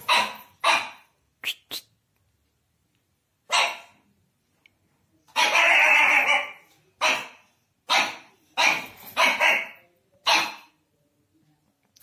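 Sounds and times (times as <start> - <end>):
puppy barking: 0.0 - 1.1, 3.5 - 4.0, 5.3 - 10.8.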